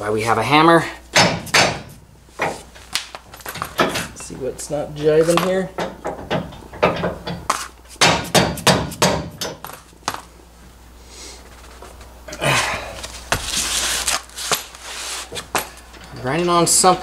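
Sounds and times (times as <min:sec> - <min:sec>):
hammer knocking on metal: 0:01.2 - 0:02.6, 0:08.0 - 0:09.6.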